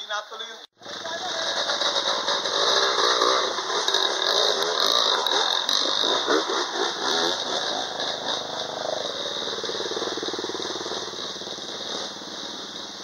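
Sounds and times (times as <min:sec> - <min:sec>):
dirt bike engine revving: 0:00.7 - 0:13.0
steady hiss: 0:07.4 - 0:13.0.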